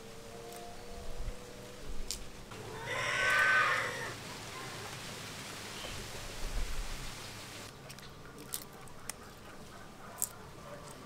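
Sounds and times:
brief animal call: 2.6s - 4.8s.

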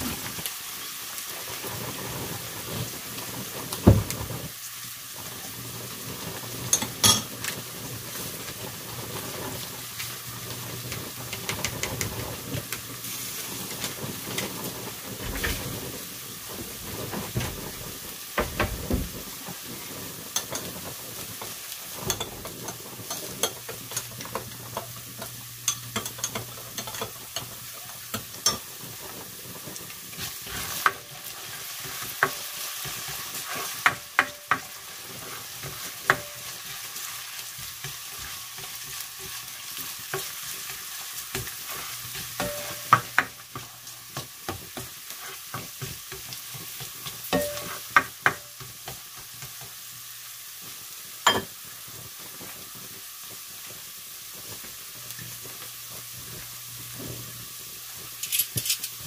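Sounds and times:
onions sizzling in hot oil: 0.0s - 59.0s
spatula scraping a pan: 10.8s - 18.2s, 19.2s - 48.0s.

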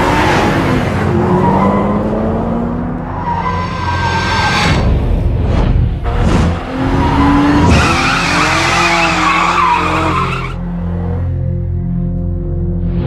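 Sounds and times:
tyres squealing: 7.0s - 10.6s.

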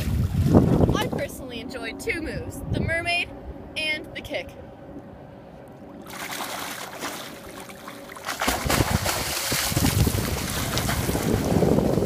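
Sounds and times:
wind buffeting microphone: 0.0s - 6.5s, 8.3s - 12.0s
water splashing from kicking: 6.0s - 12.0s.

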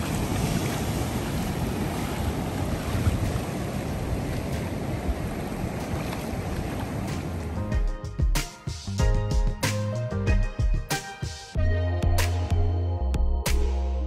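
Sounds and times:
surf breaking on rocks: 0.0s - 7.6s
wind buffeting microphone: 0.0s - 7.6s.

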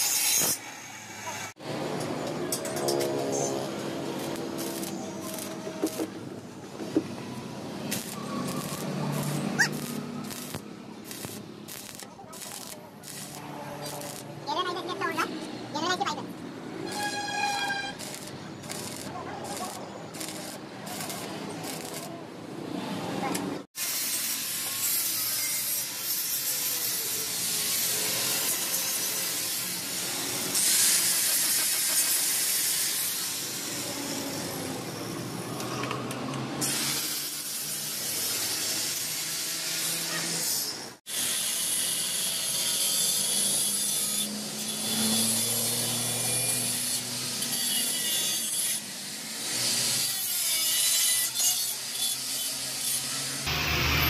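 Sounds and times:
angle grinder grinding metal: 2.6s - 6.2s, 7.8s - 15.4s, 16.8s - 22.2s, 36.6s - 54.0s.

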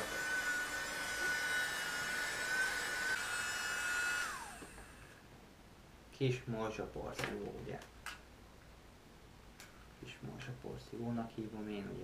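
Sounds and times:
keyboard vacuum whining: 0.0s - 5.2s.

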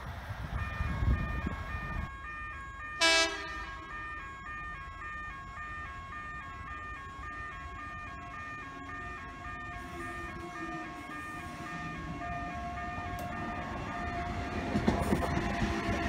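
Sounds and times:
level crossing alarm two-tone: 0.6s - 14.7s
train horn toot: 3.0s - 4.1s.

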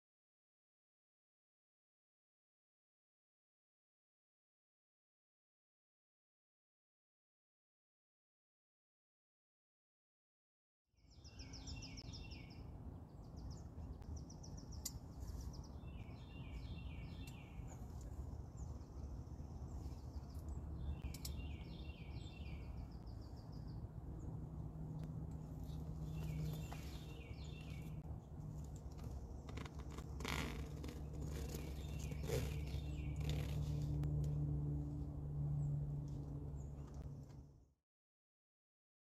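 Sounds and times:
songbird singing: 11.0s - 34.2s
low outdoor rumble: 11.2s - 37.7s.

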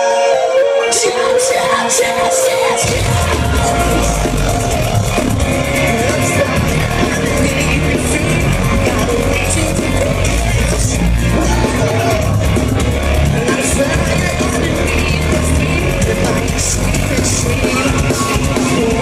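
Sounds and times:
rock band playing live: 0.1s - 19.0s.

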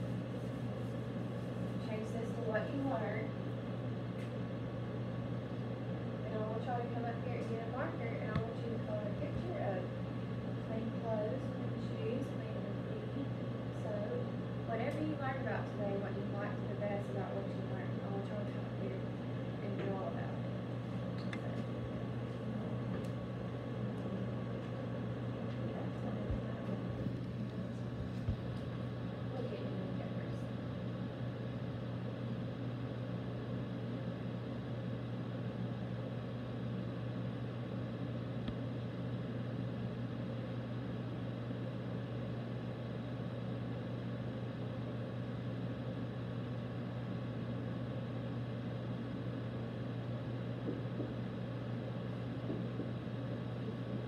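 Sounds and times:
low mechanical room hum: 0.0s - 54.0s.

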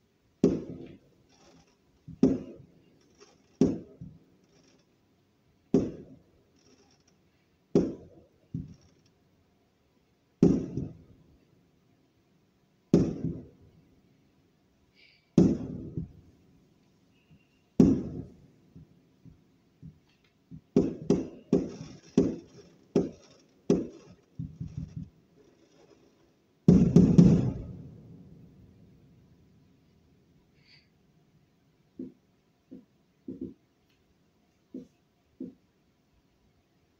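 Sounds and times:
firework shells booming: 0.4s - 4.8s, 5.7s - 7.1s, 7.7s - 8.9s, 10.4s - 11.1s, 12.9s - 13.5s, 15.4s - 16.3s, 17.8s - 18.9s, 20.6s - 28.6s
smaller firework bang: 17.8s - 18.3s, 26.7s - 28.0s.

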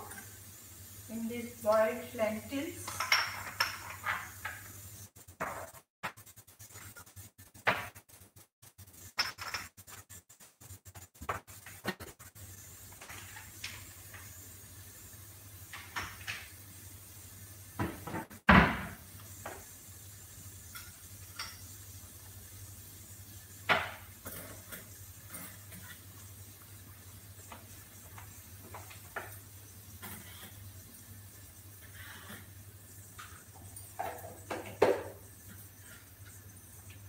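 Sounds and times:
pots and utensils clinking: 0.0s - 0.4s, 1.6s - 4.8s, 9.0s - 9.8s, 12.9s - 14.4s, 15.6s - 16.6s, 20.6s - 21.9s, 23.6s - 26.3s, 27.4s - 31.2s, 31.8s - 37.0s
cupboard door thumping shut: 17.9s - 19.0s.

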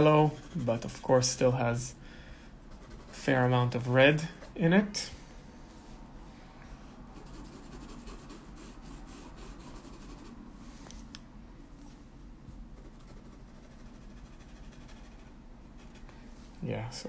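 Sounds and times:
pencil scratching on paper: 0.0s - 1.3s, 2.7s - 4.6s, 7.1s - 10.4s, 12.8s - 16.0s.

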